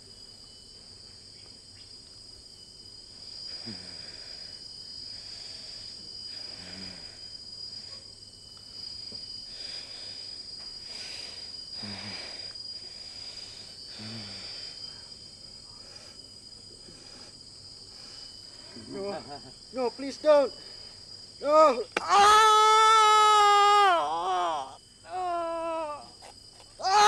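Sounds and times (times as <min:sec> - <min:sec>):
person exhaling with groans: 0:03.5 - 0:07.3, 0:09.5 - 0:15.2, 0:23.8 - 0:27.0.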